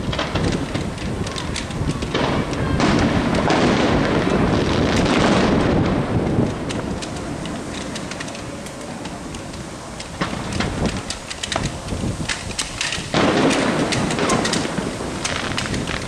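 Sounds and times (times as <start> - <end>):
fireworks bursting and crackling: 0.0 - 16.0.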